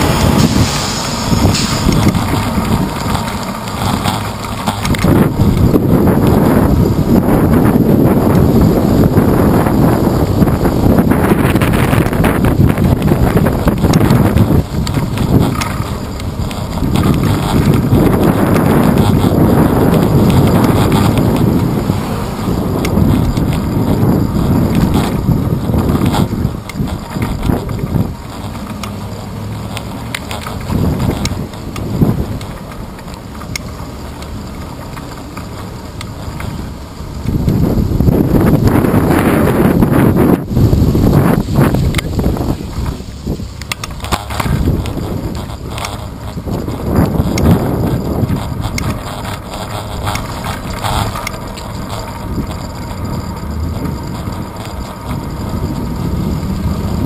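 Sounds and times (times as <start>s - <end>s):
road rumble: 0.0s - 57.0s
wind buffeting camera: 0.0s - 57.0s.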